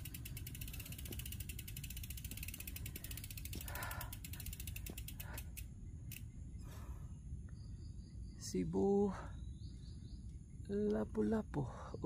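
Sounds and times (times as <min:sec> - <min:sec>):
bicycle freewheel hub ticking: 0:00.0 - 0:06.4.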